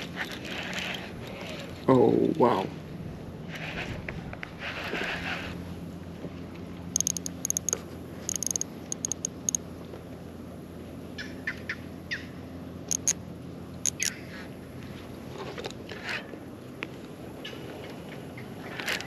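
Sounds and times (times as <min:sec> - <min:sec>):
steady low hum: 0:00.0 - 0:15.3.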